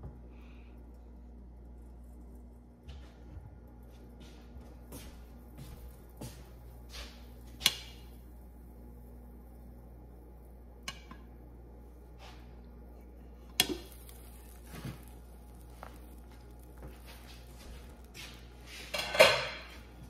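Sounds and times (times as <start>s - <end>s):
egg sizzling in a pan: 13.6s - 18.6s.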